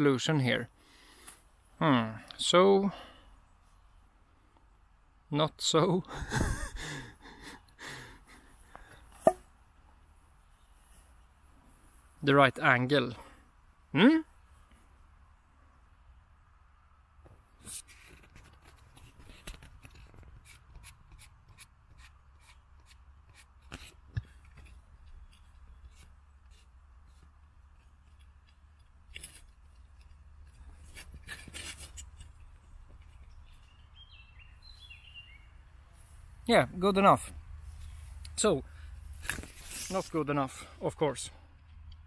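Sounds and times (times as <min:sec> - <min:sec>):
rustling grass stems: 0:37.6 - 0:40.3.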